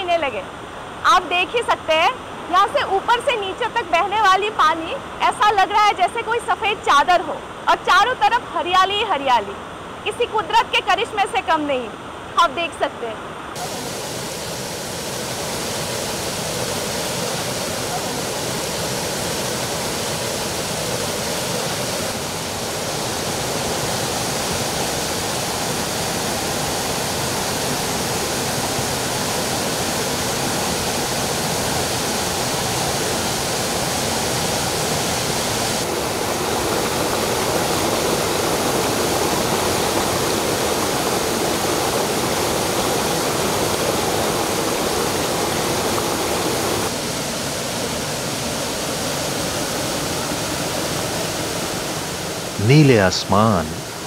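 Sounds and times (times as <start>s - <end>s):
waterfall rushing over boulders: 13.3s - 54.0s.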